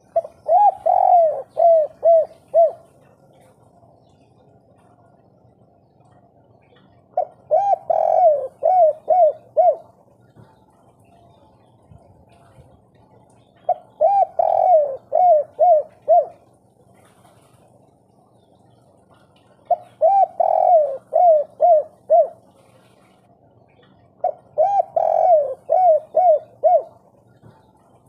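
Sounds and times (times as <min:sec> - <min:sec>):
dove cooing: 0:00.0 - 0:03.6, 0:05.9 - 0:28.0.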